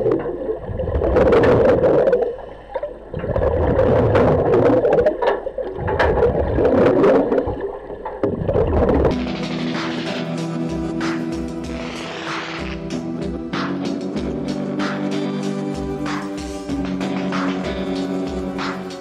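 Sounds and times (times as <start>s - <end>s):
underwater exhaled bubbles: 0.0s - 10.2s
music: 9.1s - 19.0s.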